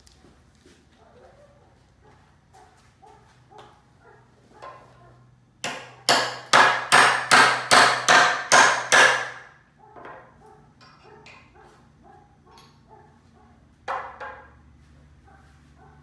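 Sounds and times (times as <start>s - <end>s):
hammer striking nail into wood: 5.6s - 9.5s.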